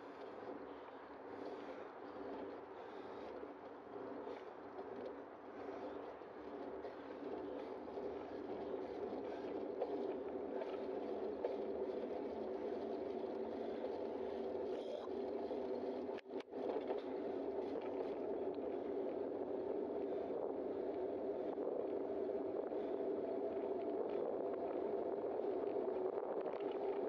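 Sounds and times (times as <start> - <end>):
bicycle tyre noise: 0.0 - 27.0
wind rushing on microphone: 16.5 - 27.0.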